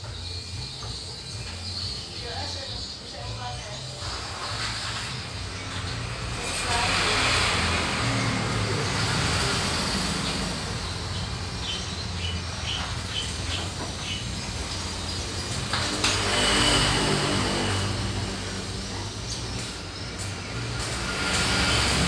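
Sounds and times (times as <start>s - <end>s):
road traffic passing: 0.0s - 22.0s
bird chirping: 8.7s - 15.9s.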